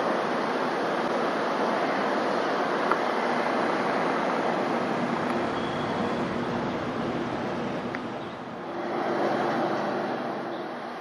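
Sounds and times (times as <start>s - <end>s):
train rumbling past: 3.1s - 11.0s.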